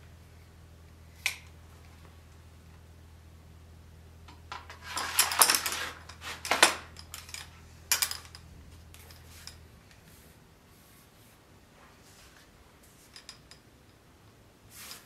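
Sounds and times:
sword scraping and clinking in scabbard: 4.6 - 8.4, 9.0 - 9.6.

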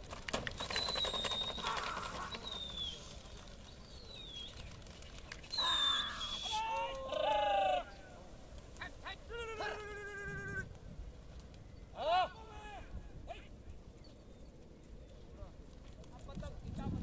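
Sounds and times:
downward-sliding bird calls: 0.6 - 4.7, 5.4 - 8.1.

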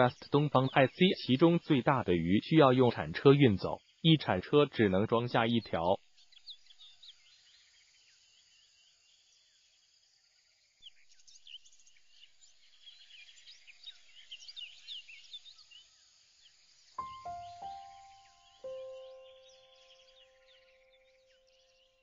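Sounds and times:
small birds chirping: 0.0 - 9.9, 10.7 - 22.0.

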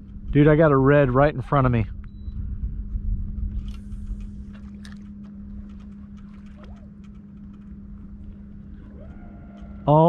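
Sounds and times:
low rumble: 0.0 - 10.0
electric trolling motor humming: 2.4 - 10.0.

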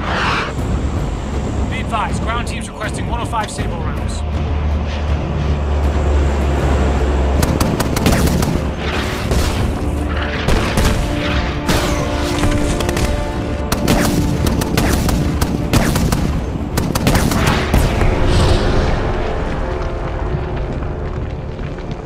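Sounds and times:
film score music: 0.0 - 22.0
cannon fire and explosions: 7.3 - 22.0.

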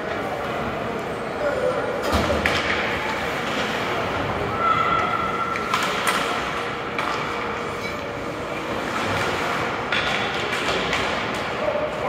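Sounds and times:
hockey sticks hitting puck: 4.9 - 12.0.

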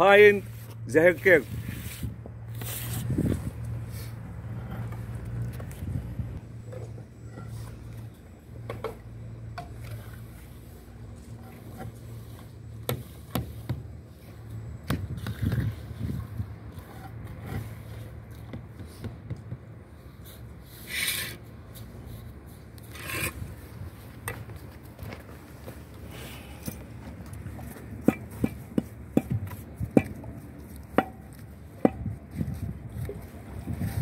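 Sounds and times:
mortar scraping against stone: 22.8 - 23.4.

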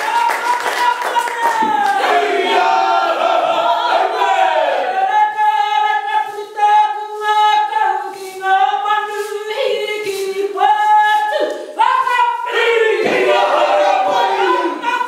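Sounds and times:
group singing with held notes: 1.6 - 6.4, 12.4 - 15.0.

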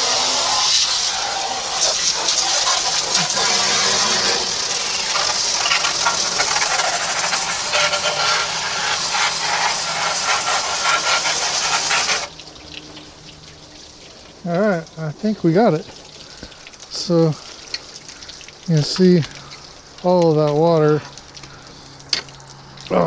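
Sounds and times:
water spraying into metal chamber: 0.0 - 23.0.

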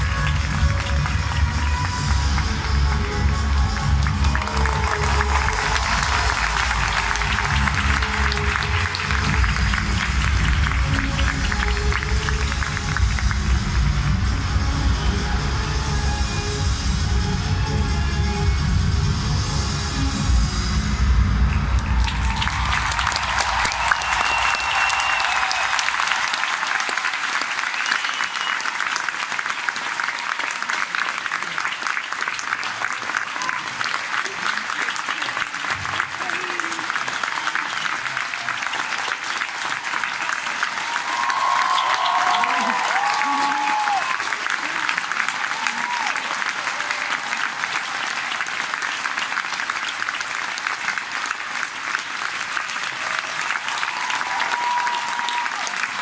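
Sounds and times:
audience applauding: 0.0 - 14.1, 21.4 - 56.0.

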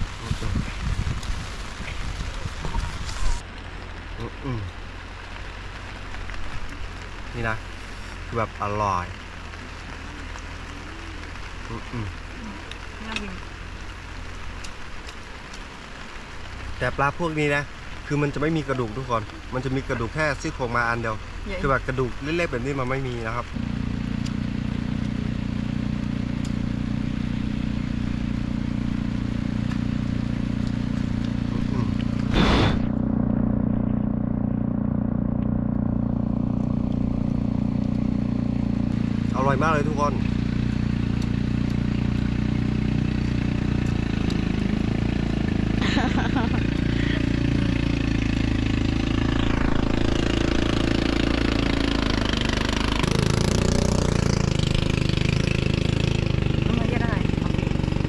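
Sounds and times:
engine running: 16.9 - 58.0.

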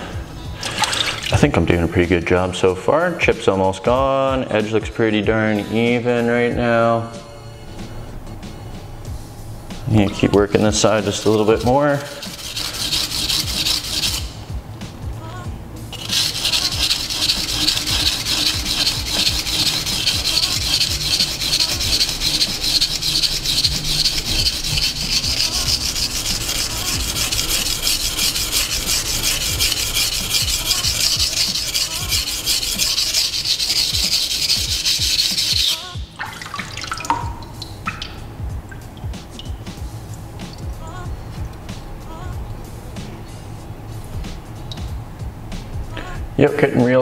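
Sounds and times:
knife rasping on whetstone: 10.2 - 14.4, 15.9 - 36.0.

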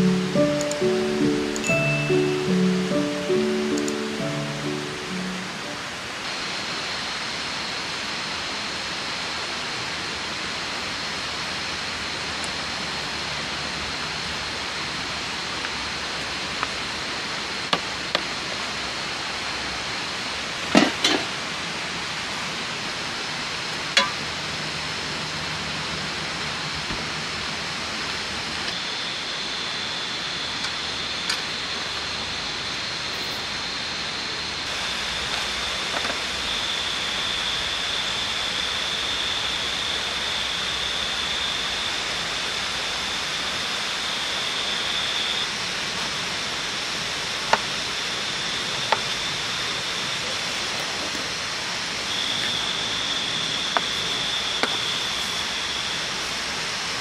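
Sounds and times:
thin high tone: 0.0 - 6.2.

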